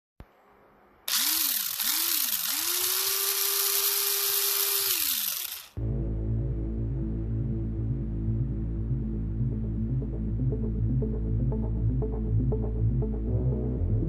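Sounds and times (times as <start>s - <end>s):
music with low hum: 5.8s - 14.0s.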